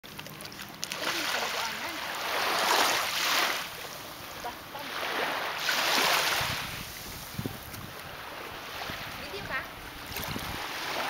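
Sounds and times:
small sea waves washing in: 0.1s - 11.0s.

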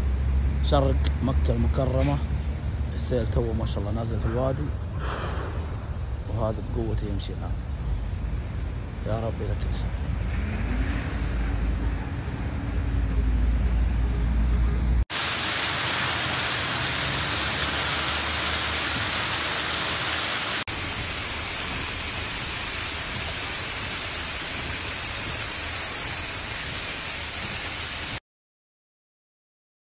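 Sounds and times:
flood water rushing: 15.1s - 28.2s
waterfall pouring down rock: 15.1s - 28.2s.

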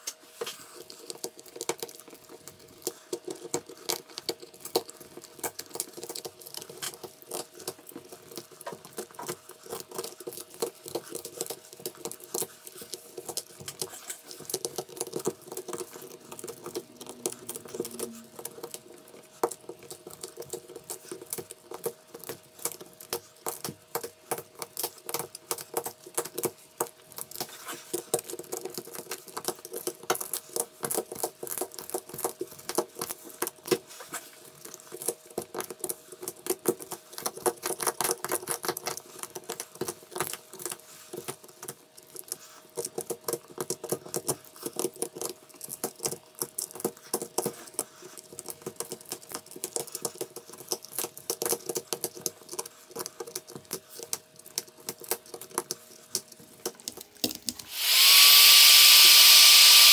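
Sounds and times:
faint steady hum: 0.0s - 29.2s.

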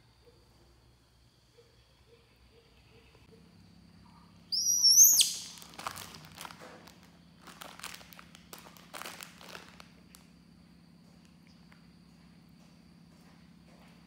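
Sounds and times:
baby monkey squealing: 4.5s - 5.7s.

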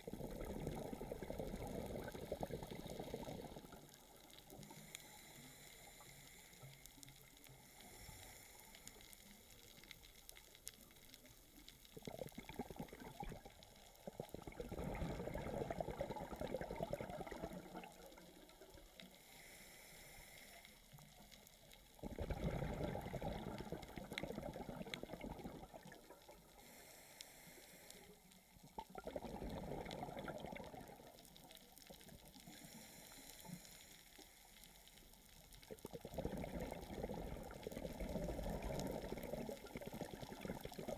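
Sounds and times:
exhaled bubbles underwater: 0.0s - 4.8s, 10.8s - 19.0s, 22.0s - 26.6s, 28.6s - 32.7s, 35.5s - 40.9s
regulator inhale hiss: 4.5s - 9.6s, 19.0s - 21.5s, 26.6s - 28.6s, 32.4s - 35.2s.

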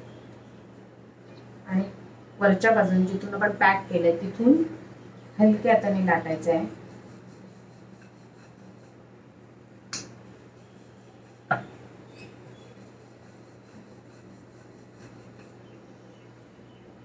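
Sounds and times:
rolling pin rubbing on dough: 6.2s - 9.1s, 10.3s - 15.7s.

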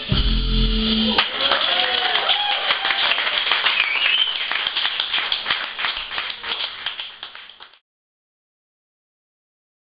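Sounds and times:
audience clapping and cheering: 1.1s - 7.8s.

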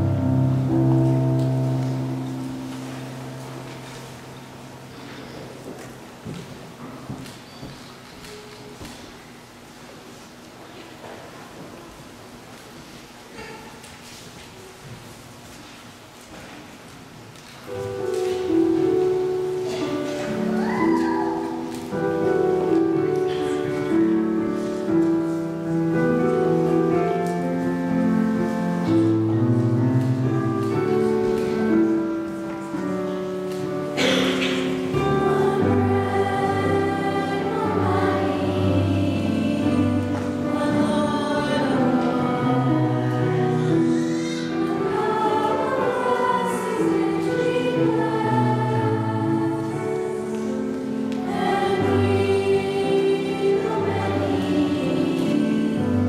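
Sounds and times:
choir singing a hymn: 17.7s - 56.0s.

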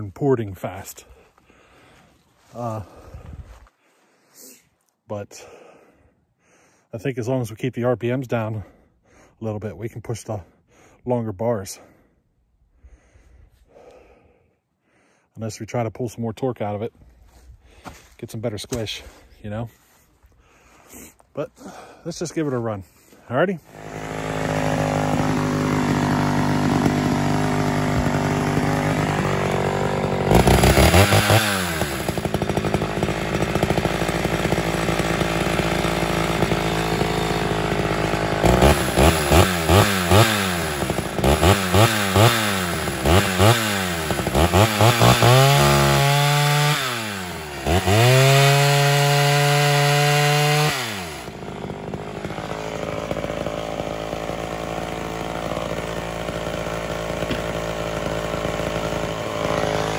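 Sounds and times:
chainsaw idling and revving: 0.6s - 3.6s, 21.6s - 59.9s.

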